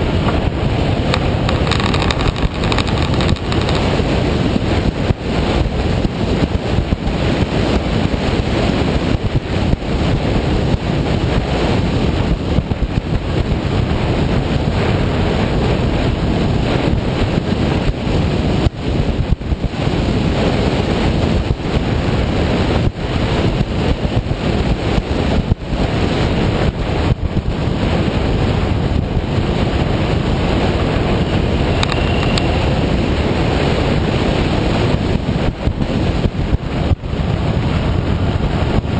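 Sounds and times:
motorcycle engine: 0:00.0 - 0:06.4
road noise: 0:00.0 - 0:38.9
wind rushing over microphone: 0:00.0 - 0:38.9.

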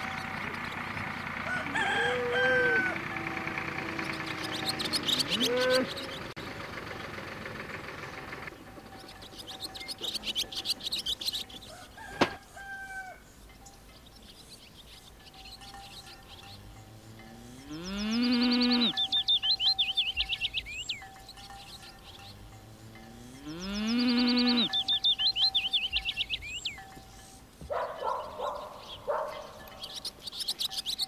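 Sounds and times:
hens clucking: 0:00.0 - 0:13.2
small birds chirping: 0:00.0 - 0:31.0
rooster crowing: 0:01.2 - 0:04.6, 0:11.6 - 0:13.3
cow mooing: 0:01.6 - 0:06.1, 0:16.8 - 0:19.2, 0:22.6 - 0:24.9.

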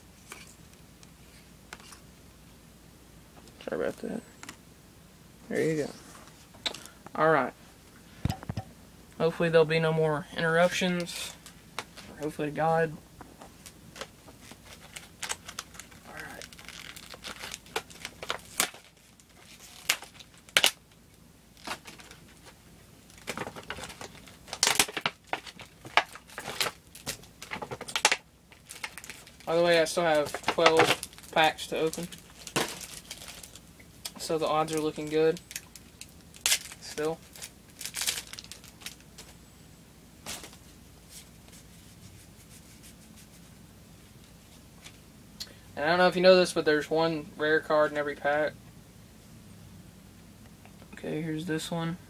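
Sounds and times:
wrapper tearing and crinkling: 0:13.9 - 0:20.9, 0:21.6 - 0:39.3.

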